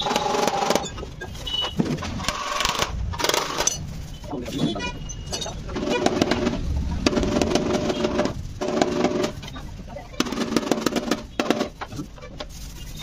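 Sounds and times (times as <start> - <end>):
hand tool scraping plastic: 4.4 - 13.0.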